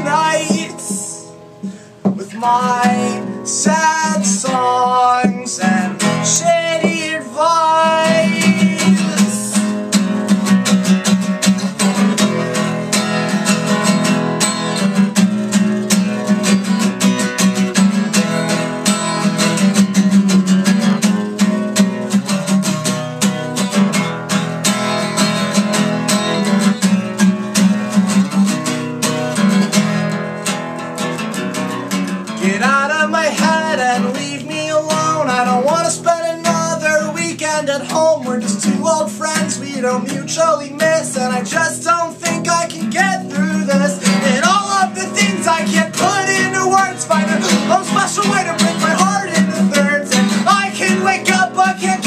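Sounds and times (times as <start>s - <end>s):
person singing: 0.0s - 9.8s, 32.4s - 52.0s
acoustic guitar strumming: 0.0s - 52.0s.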